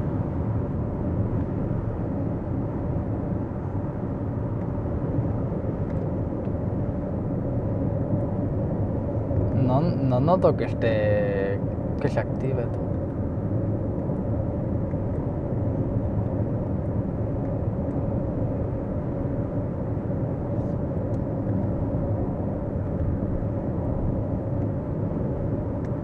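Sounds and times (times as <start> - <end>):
tyre and wind noise in car: 0.0 - 10.9, 11.6 - 26.0.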